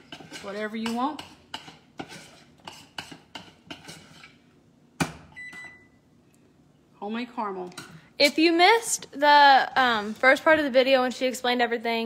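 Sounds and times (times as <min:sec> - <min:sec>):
spoon scraping a saucepan: 0:00.0 - 0:04.5.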